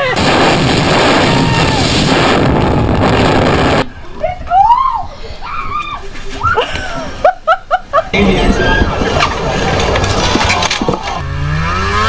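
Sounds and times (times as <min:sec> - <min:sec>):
people yelling and whooping: 0:03.9 - 0:07.4, 0:08.1 - 0:11.2.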